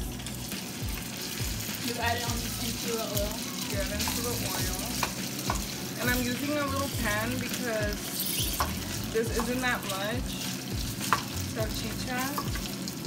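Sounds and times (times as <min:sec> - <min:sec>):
sausage sizzling in a frying pan: 0:00.0 - 0:13.0
spoon tapping against pan: 0:04.9 - 0:05.8, 0:08.4 - 0:09.6, 0:10.2 - 0:11.4, 0:12.3 - 0:12.8.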